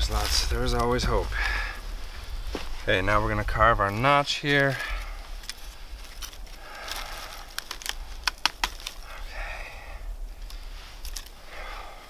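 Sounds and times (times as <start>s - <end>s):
knife carving wood: 7.5s - 9.1s.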